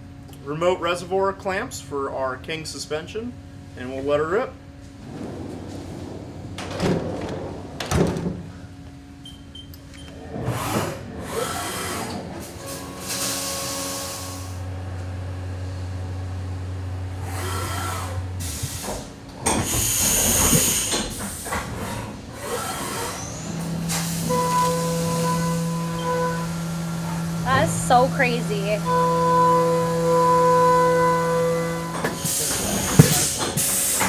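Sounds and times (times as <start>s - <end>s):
sliding door clunking shut: 4.9s - 13.4s, 31.8s - 34.0s
milling machine tones: 22.5s - 33.5s.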